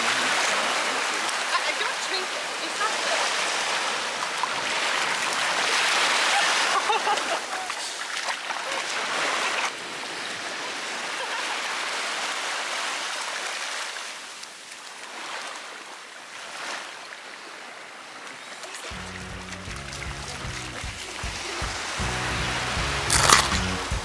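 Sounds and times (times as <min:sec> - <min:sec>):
small waves washing over sand: 0:00.0 - 0:23.8
background music: 0:18.9 - 0:24.0.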